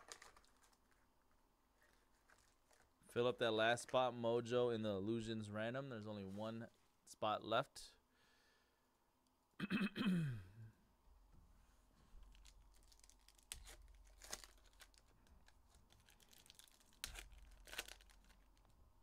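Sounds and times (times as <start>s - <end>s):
foil packs tearing: 0.0s - 0.8s, 12.3s - 18.7s
wrappers crinkling: 0.0s - 3.1s, 12.2s - 18.8s.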